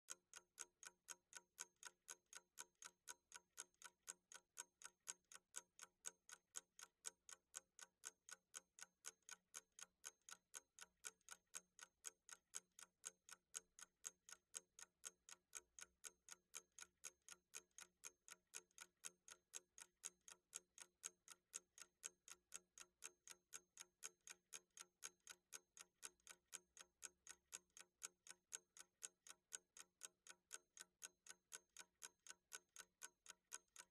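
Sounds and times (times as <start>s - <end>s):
clock ticking: 0.1s - 33.9s.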